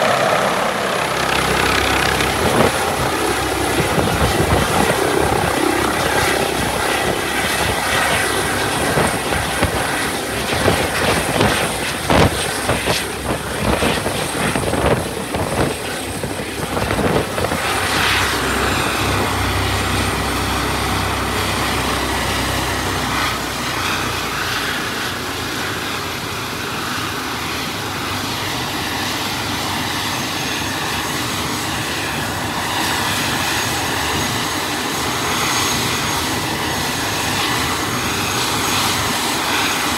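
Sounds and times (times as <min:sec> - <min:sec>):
wind buffeting microphone: 0:00.0 - 0:24.8
helicopter hovering and landing: 0:00.0 - 0:39.9.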